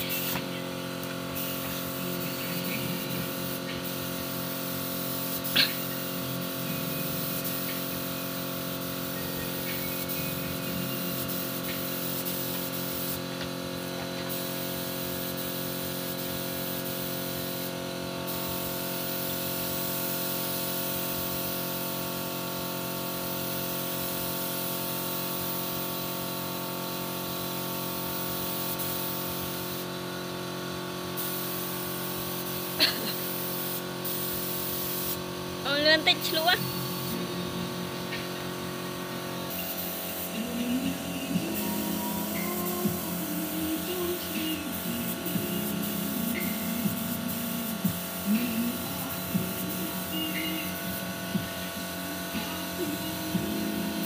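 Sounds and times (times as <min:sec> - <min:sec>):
steady tonal hum: 0:00.0 - 0:12.1, 0:35.4 - 0:54.0
air spray gun hissing: 0:00.0 - 0:54.0.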